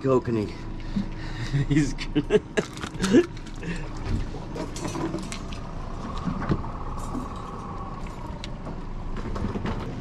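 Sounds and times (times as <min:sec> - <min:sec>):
boat motor rumble: 0:00.0 - 0:10.0
wind: 0:00.0 - 0:10.0
fishing gear clinking: 0:02.6 - 0:05.7.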